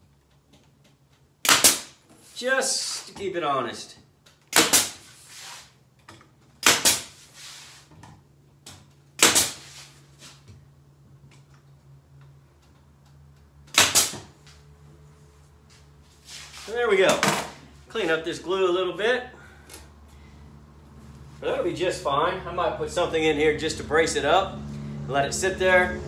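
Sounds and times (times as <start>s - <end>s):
nail gun firing: 1.4s - 2.0s, 4.5s - 5.1s, 6.6s - 7.1s, 9.2s - 9.6s, 13.7s - 14.2s.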